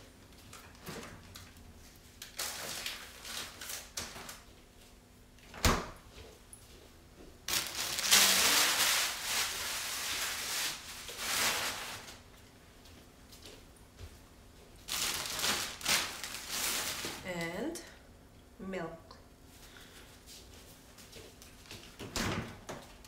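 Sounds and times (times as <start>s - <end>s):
plastic bags rustling: 0.4s - 4.6s, 7.4s - 12.4s, 14.8s - 17.4s.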